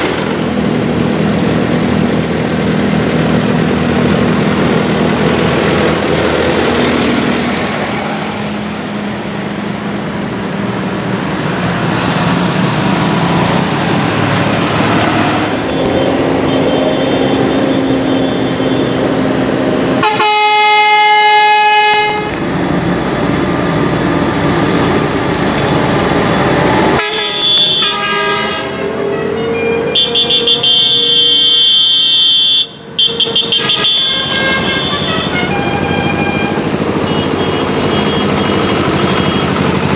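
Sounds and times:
tractor diesel engines: 0:00.0 - 0:39.9
horn blasts: 0:20.0 - 0:22.4, 0:27.0 - 0:39.6.

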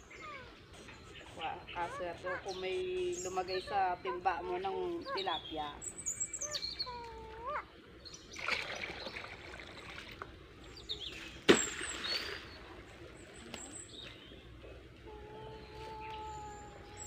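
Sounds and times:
birds chirping: 0:00.0 - 0:17.0
water trickling and dripping: 0:08.3 - 0:10.7
net splashing into water: 0:08.4 - 0:10.2, 0:11.5 - 0:13.6.

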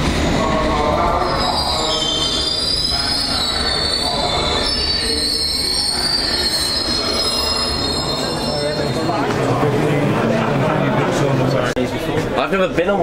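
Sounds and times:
train rumbling: 0:00.0 - 0:11.7
train wheels squealing: 0:00.8 - 0:09.5.

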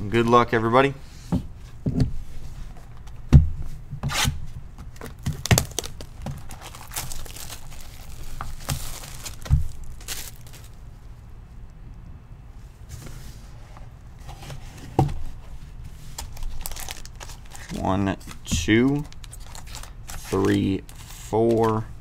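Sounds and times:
plastic wrap tearing and crinkling: 0:05.0 - 0:10.8, 0:16.2 - 0:17.8, 0:18.9 - 0:21.6.

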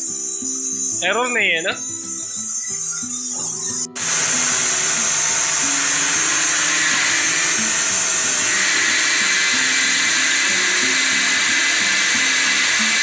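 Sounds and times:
woodworking machinery rushing: 0:04.0 - 0:13.0.

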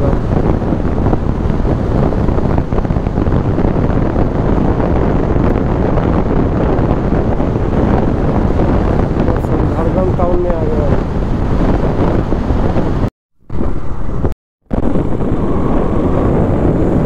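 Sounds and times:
road noise: 0:00.0 - 0:17.0
wind rushing over microphone: 0:00.0 - 0:17.0.

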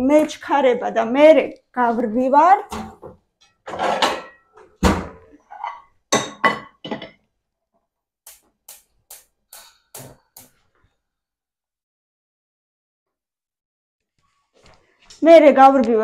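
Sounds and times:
frying pans clattering: 0:03.6 - 0:07.1.

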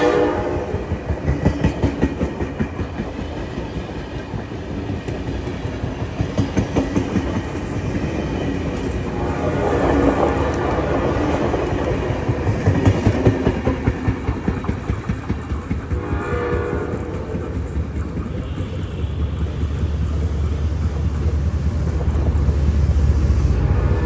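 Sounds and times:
train horn: 0:00.0 - 0:01.1, 0:09.0 - 0:11.0, 0:15.9 - 0:20.0, 0:23.4 - 0:24.0
diesel locomotive engine rumble: 0:00.0 - 0:24.0
train coaches clattering over rails: 0:00.7 - 0:23.3.

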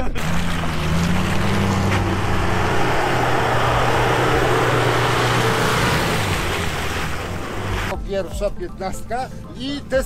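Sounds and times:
vehicle engine running: 0:00.0 - 0:07.9.

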